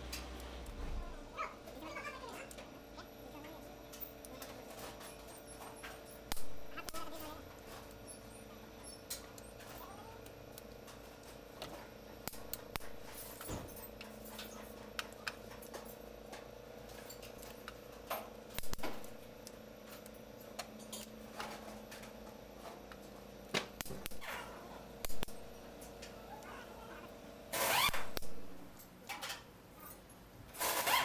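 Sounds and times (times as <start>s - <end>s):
steady low hum: 0.0s - 30.7s.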